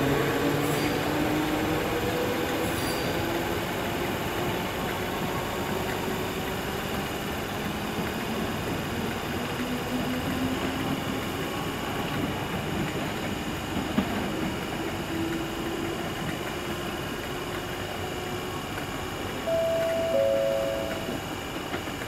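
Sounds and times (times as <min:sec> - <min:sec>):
electric train rumbling: 0:00.0 - 0:22.0
two-note station chime: 0:19.5 - 0:21.3.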